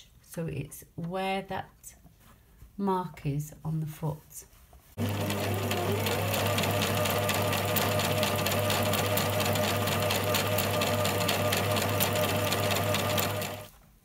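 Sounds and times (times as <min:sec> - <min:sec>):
sewing machine motor whine: 0:05.0 - 0:13.7.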